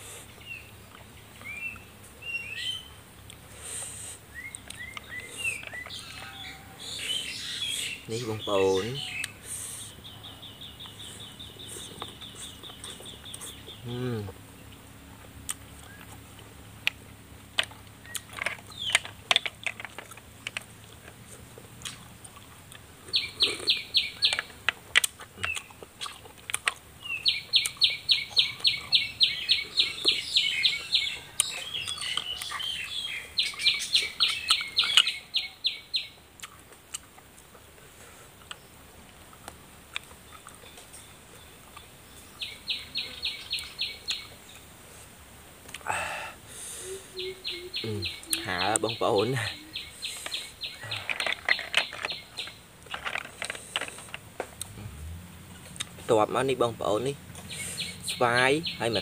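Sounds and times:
bird trilling: 0:04.3 - 0:14.2, 0:23.1 - 0:24.6, 0:27.0 - 0:36.2, 0:42.3 - 0:44.4, 0:46.0 - 0:52.6, 0:56.1 - 0:59.0.

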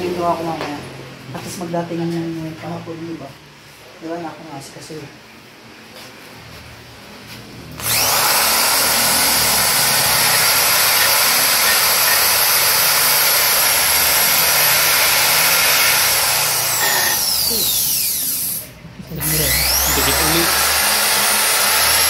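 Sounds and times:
electric power tool running: 0:07.7 - 0:22.0.

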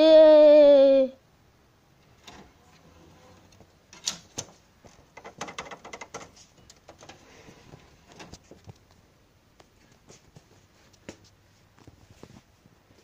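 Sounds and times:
faint clicks and taps: 0:09.6 - 0:13.0.

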